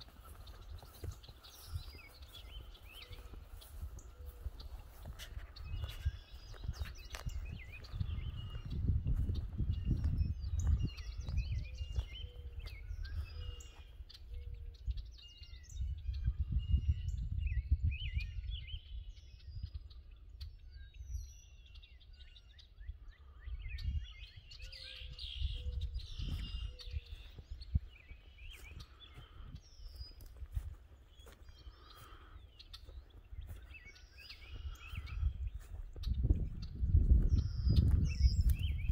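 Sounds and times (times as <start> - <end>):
footsteps on grass: 0.0 - 14.0, 25.6 - 38.9
evenly spaced low bird notes: 0.0 - 38.9
small birds chirping: 0.0 - 38.9.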